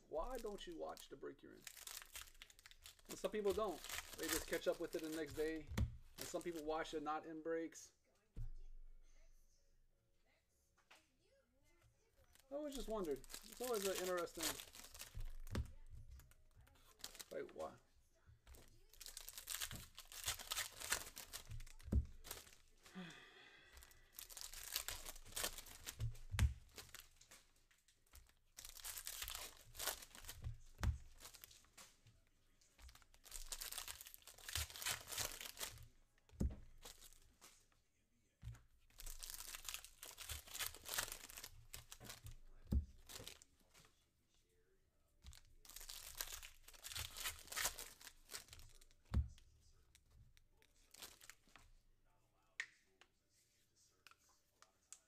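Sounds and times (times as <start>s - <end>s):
foil wrappers crinkling and tearing: 0.1s - 7.0s, 12.2s - 17.8s, 18.5s - 23.1s, 23.7s - 32.0s, 32.7s - 35.9s, 36.7s - 37.6s, 38.9s - 43.8s, 45.3s - 49.2s, 49.8s - 51.6s.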